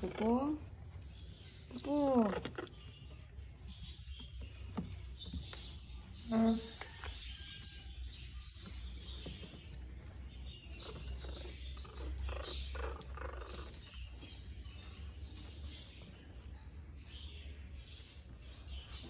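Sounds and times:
puppies grunting and whimpering: 10.4 - 15.5
puppies crying: 10.6 - 14.9.

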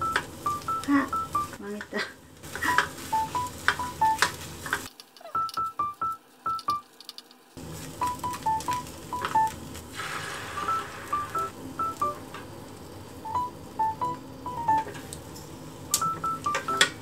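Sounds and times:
egg sizzling in hot pan: 0.0 - 5.7, 6.3 - 16.8
plinky high-note background music: 3.1 - 4.2, 8.0 - 9.6, 13.3 - 14.9.

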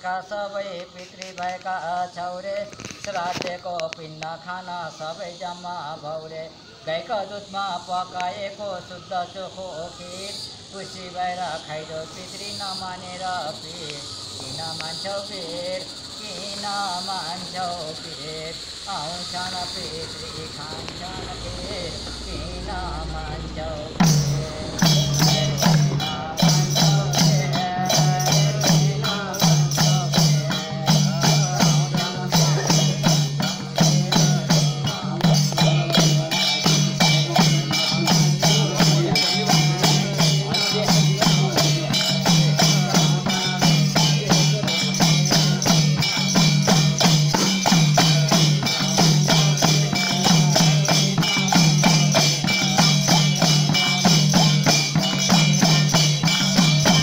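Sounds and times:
hand cymbals clashing: 12.0 - 57.0
hand drum beating rhythm: 22.5 - 57.0
frame drum: 23.8 - 57.0.

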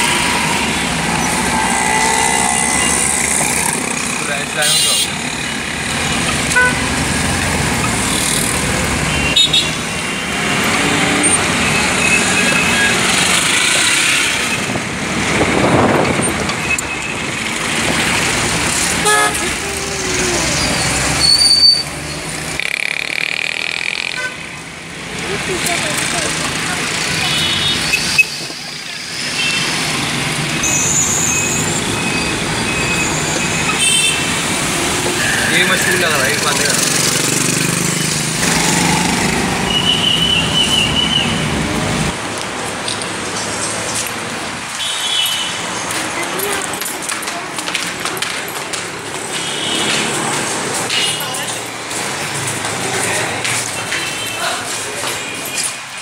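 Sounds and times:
street traffic noise: 0.0 - 56.0
horn toots: 19.0 - 19.6.

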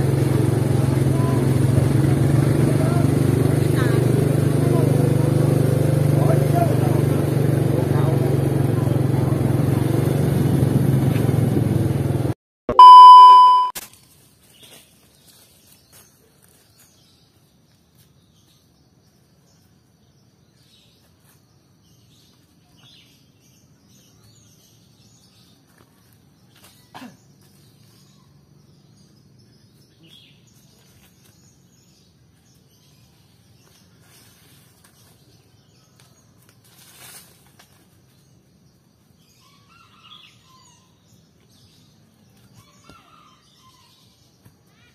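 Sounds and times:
busy street market noise: 0.0 - 12.1
loud bell-like ding: 12.7 - 13.8
faint bird chirps: 12.8 - 13.7.

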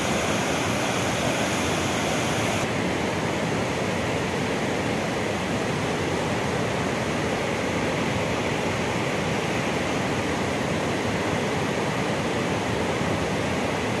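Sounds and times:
waterfall rushing: 0.0 - 2.8.

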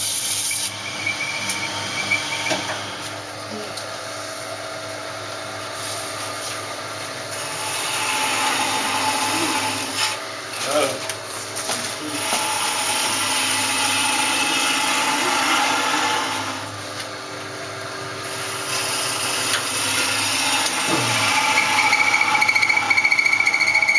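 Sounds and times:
lathe motor hum: 0.6 - 11.0, 12.0 - 23.9
gouge scraping spinning wood: 7.3 - 11.0, 18.3 - 23.9.

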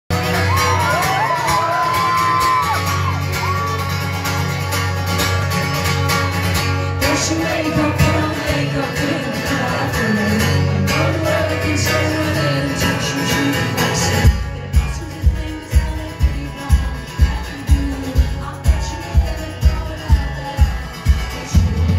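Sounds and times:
crowd whooping: 0.1 - 4.5, 18.6 - 21.9
acoustic guitar strummed: 0.1 - 21.9
woman singing: 7.0 - 21.9.

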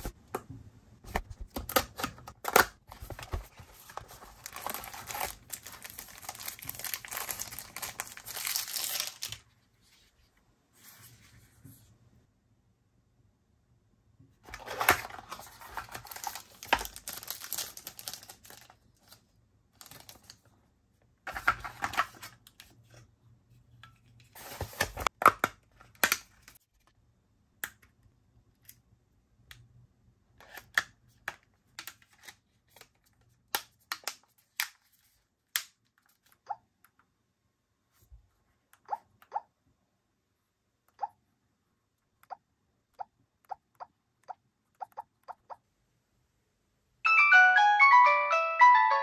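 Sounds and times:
rustling and scraping of phone cover: 1.1 - 12.0, 14.4 - 17.2, 23.7 - 25.2.

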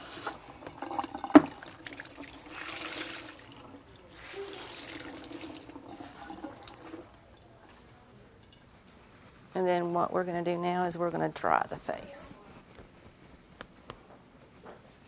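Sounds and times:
water splashing in a sink: 0.0 - 7.6.

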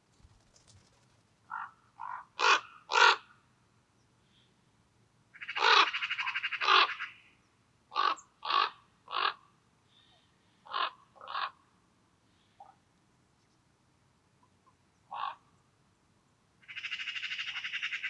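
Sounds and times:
jay rattling call: 1.5 - 3.2, 5.4 - 7.2, 8.0 - 9.4.

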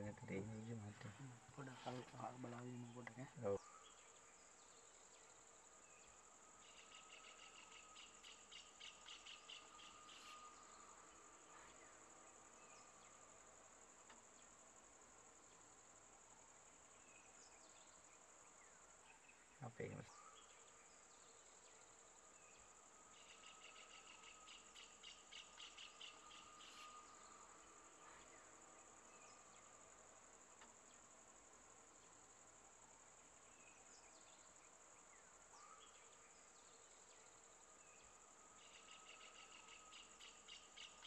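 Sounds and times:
high-pitched insect drone: 0.0 - 13.2, 20.4 - 30.4, 35.6 - 41.0
rapid pulsing insect chirp: 0.0 - 41.0.

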